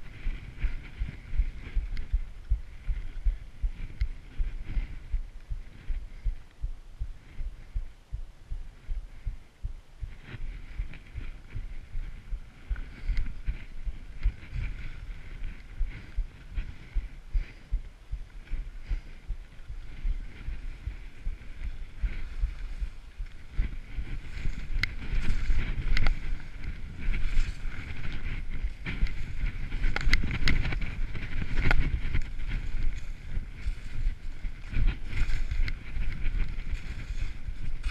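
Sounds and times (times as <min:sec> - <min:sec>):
wind buffeting microphone: 0:00.0 - 0:37.9
skis scraping over snow: 0:21.4 - 0:37.9.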